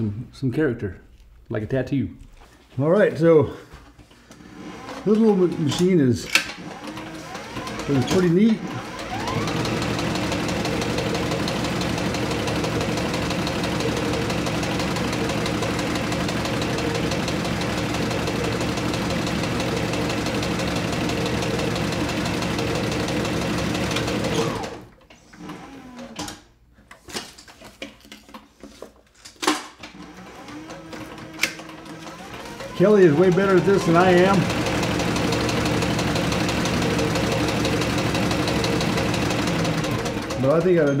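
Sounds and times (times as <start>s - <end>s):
sewing machine stitching: 4.4s - 26.4s, 29.8s - 41.0s.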